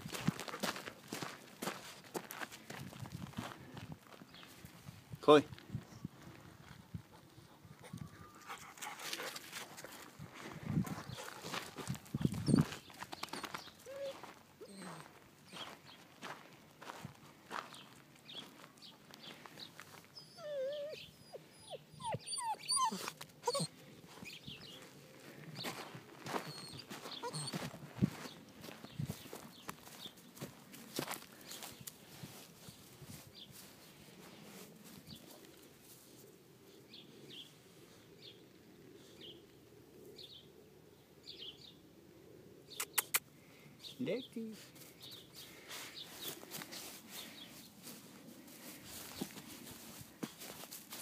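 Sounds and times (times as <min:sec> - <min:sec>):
footsteps crunching on gravel: 0:00.0 - 0:04.7, 0:09.1 - 0:20.2, 0:24.1 - 0:35.5, 0:45.0 - 0:51.0
puppy whining and whimpering: 0:12.4 - 0:12.7, 0:13.4 - 0:15.2, 0:20.2 - 0:23.8, 0:26.4 - 0:27.8.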